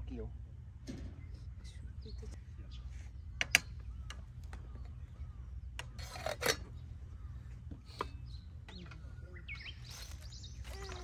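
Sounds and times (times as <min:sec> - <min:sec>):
steady low rumble: 0:00.0 - 0:05.9.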